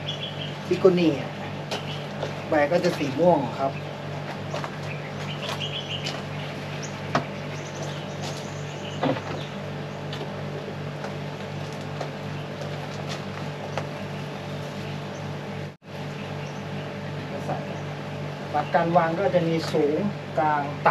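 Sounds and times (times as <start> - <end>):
low machine hum: 0.0 - 20.9
knocks and rustles of plant pot: 9.0 - 9.5.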